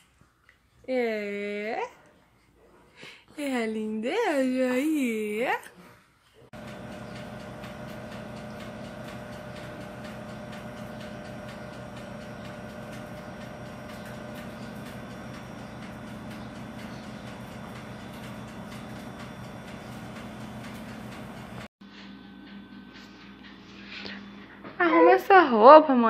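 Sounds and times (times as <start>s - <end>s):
steady mechanical hum: 6.5s - 26.0s
fast faint ticking: 6.6s - 21.7s.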